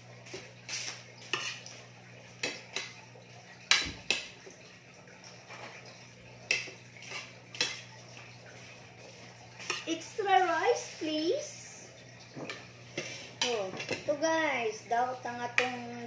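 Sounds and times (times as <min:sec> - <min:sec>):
spoons clinking on ceramic plates: 0:06.5 - 0:07.9.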